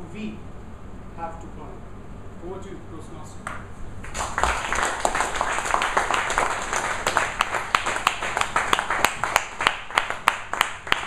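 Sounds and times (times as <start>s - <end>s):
loud hand claps: 3.4s - 11.0s
audience applauding: 4.0s - 11.0s.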